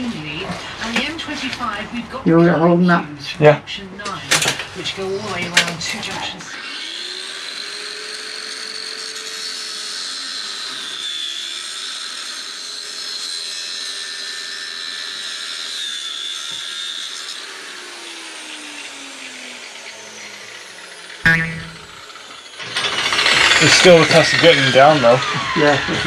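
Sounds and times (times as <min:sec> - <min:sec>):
angle grinder cutting steel: 0:06.6 - 0:15.8.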